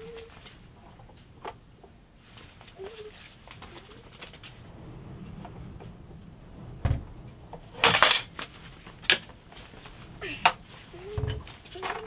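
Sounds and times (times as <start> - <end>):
dull thump: 4.5 - 11.6
hard objects clattering together: 6.9 - 12.0.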